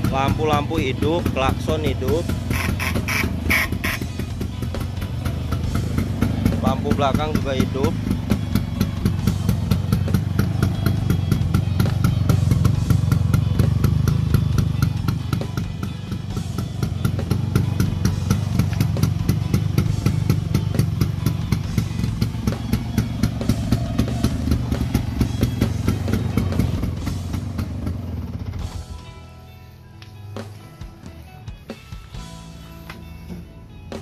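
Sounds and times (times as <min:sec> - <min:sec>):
scooter engine idling: 0:00.0 - 0:34.0.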